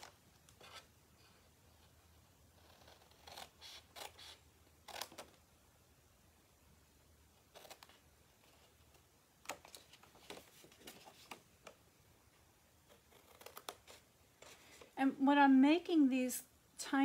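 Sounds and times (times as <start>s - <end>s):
card rustling: 7.4s - 11.8s.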